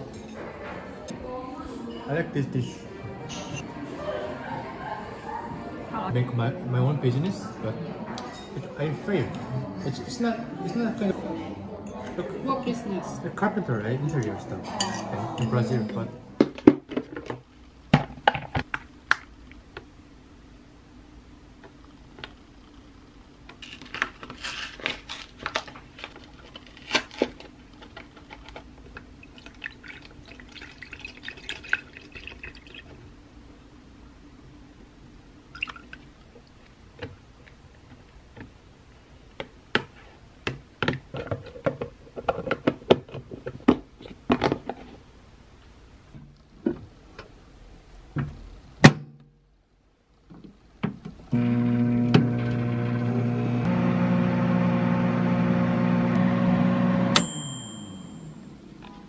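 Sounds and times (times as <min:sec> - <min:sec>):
liquid pouring into container: 0:29.1 - 0:33.0, 0:35.5 - 0:36.1.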